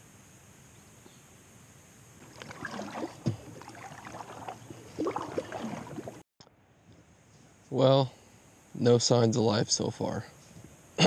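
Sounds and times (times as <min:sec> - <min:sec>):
paddle splashing in water: 0:02.2 - 0:06.2.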